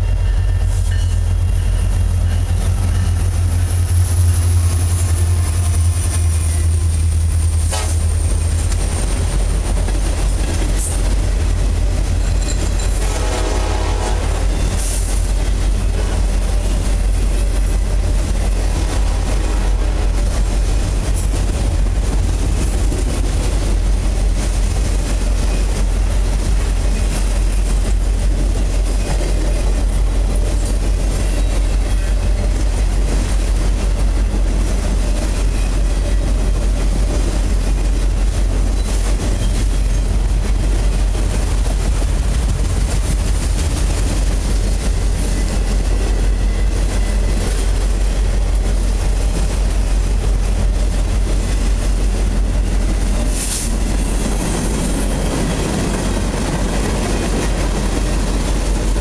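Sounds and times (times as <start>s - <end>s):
freight train wheels on rails: 0.0s - 59.0s.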